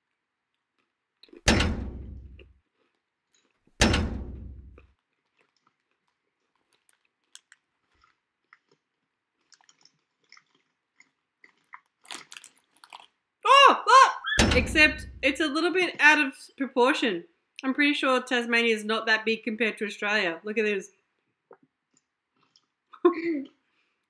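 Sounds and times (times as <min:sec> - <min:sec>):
crunching bites into crackers: 0:00.0 - 0:01.5, 0:02.2 - 0:03.8, 0:04.7 - 0:13.4, 0:21.4 - 0:22.9
faint chewing clicks: 0:04.8 - 0:13.2, 0:21.2 - 0:24.0.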